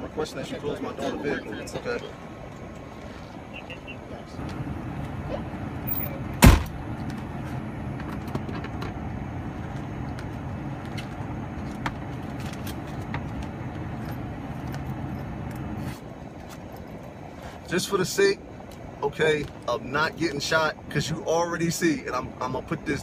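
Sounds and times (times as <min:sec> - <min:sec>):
low vehicle rumble: 0:00.0 - 0:23.0
car door slamming: 0:06.4 - 0:06.8.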